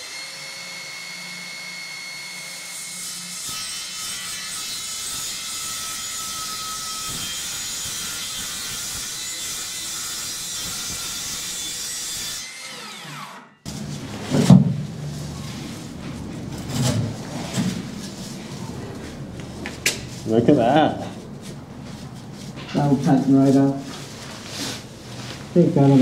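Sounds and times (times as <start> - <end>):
circular saw whining: 0.0 - 13.8.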